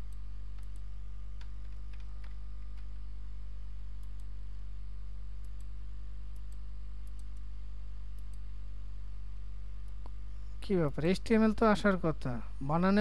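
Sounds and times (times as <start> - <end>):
electrical mains hum: 0.0 - 13.0
computer mouse clicks: 0.1 - 3.0, 4.0 - 4.3, 6.3 - 7.5, 8.2 - 8.4.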